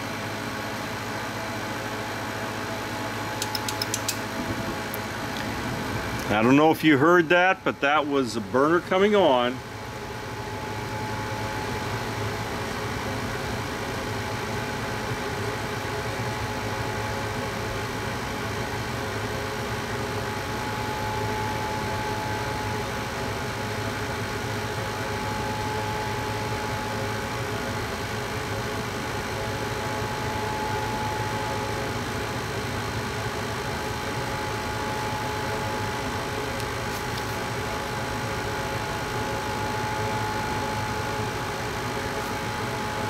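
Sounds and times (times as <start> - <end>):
furnace fan whirring: 0.0 - 43.0.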